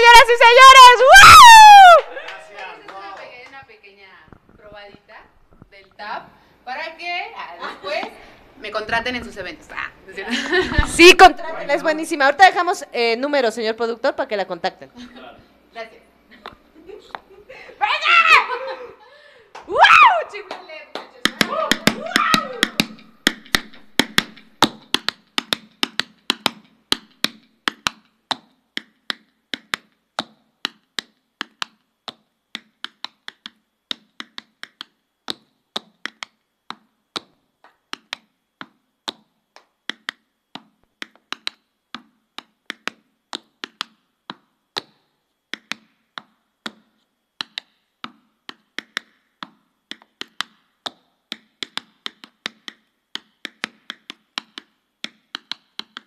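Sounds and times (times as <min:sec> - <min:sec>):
tap shoes clicking on board: 0:20.5 - 0:56.0.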